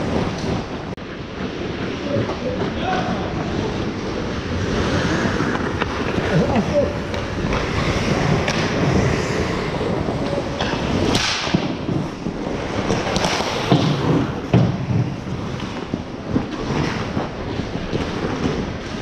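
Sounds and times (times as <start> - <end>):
rink noise: 0.0 - 19.0
skates scraping ice: 0.0 - 19.0
sharp knocks of sticks or puck: 10.6 - 11.8.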